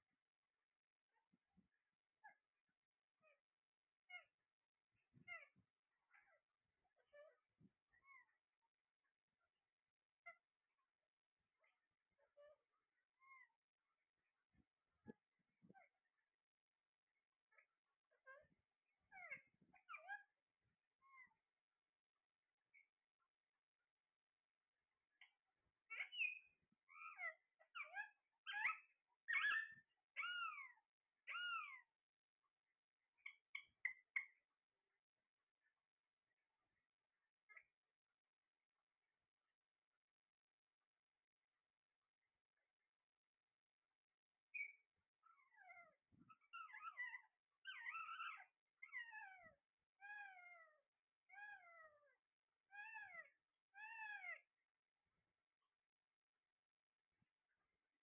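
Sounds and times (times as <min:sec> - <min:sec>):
parakeet calling: 0:25.9 - 0:31.9.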